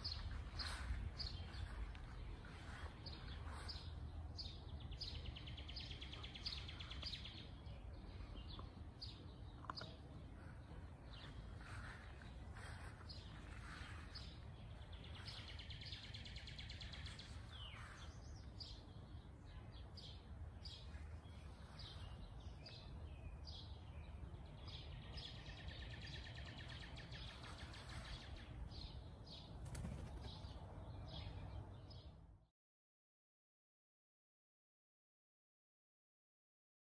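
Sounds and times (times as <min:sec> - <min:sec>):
steady low rumble: 0:00.0 - 0:25.8
birds chirping and trilling: 0:00.0 - 0:32.3.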